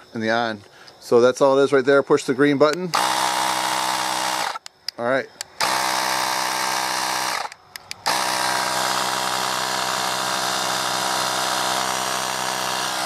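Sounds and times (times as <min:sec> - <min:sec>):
air compressor humming: 0:02.8 - 0:13.0.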